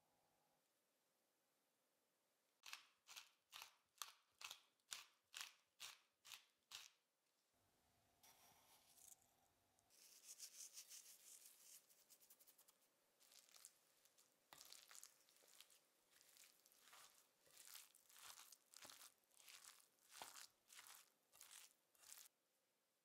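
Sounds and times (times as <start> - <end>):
salt sprinkling onto greens: 10.0 - 22.3
spoon stirring wet food: 12.5 - 22.3.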